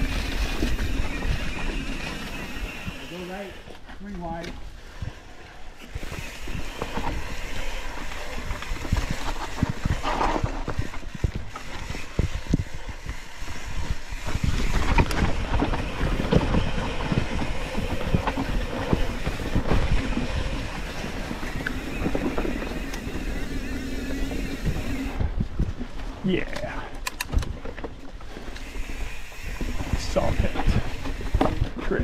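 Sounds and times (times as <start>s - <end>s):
bike tyres rolling over dirt: 0.0s - 32.0s
bike rattling and knocking: 5.9s - 26.1s, 27.2s - 32.0s.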